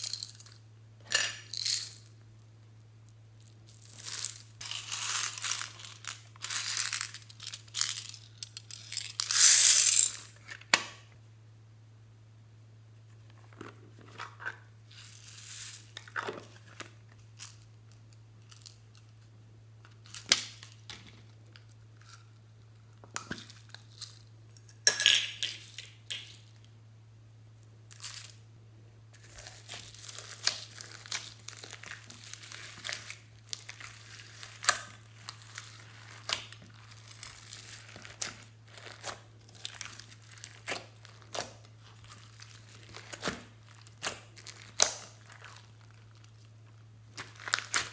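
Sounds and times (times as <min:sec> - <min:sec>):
slime crackling and squishing: 0:29.2 - 0:47.9.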